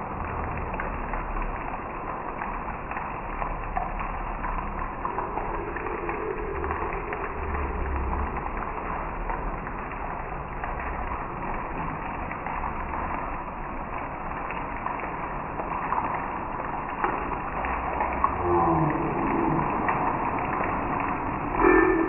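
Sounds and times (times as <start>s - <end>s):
heavy rain on road and trees: 0.0s - 22.0s
faint low hum: 3.8s - 11.9s.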